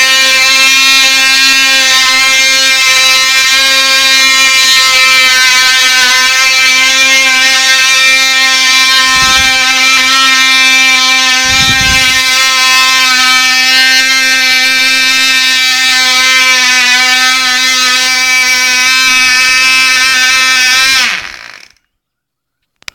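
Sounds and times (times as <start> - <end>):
model plane engine buzzing: 0.0 - 21.8.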